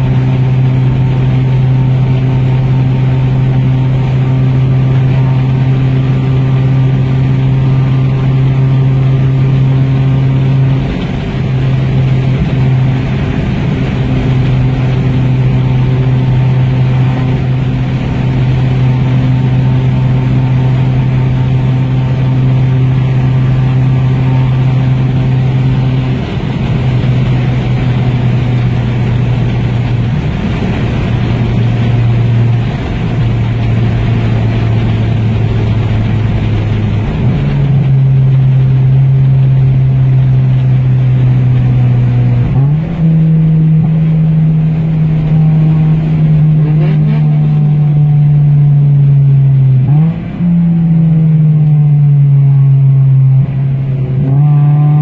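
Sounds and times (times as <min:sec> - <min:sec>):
car engine droning at high revs: 0:00.0 - 0:55.0.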